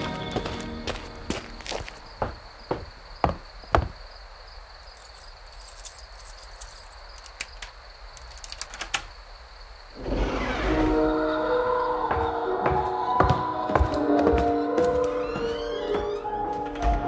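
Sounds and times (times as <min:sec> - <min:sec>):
footsteps: 0:00.0 - 0:04.0, 0:12.0 - 0:16.8
insect trill: 0:00.0 - 0:12.0.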